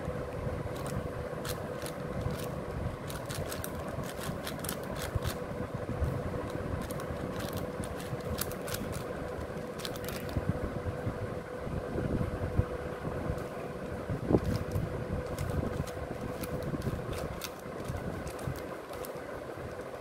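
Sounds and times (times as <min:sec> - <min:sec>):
steady low hum: 0:00.0 - 0:20.0
puzzle cube plastic clicks: 0:00.7 - 0:02.5, 0:03.1 - 0:05.4, 0:06.4 - 0:09.1, 0:09.8 - 0:10.4, 0:14.4 - 0:20.0.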